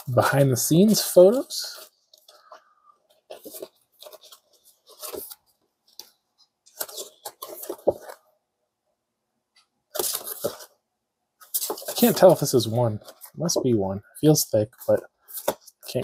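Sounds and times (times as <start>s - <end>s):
cards rustling and sliding: 0.7s - 8.2s, 9.9s - 10.8s, 11.4s - 13.6s, 14.9s - 16.0s.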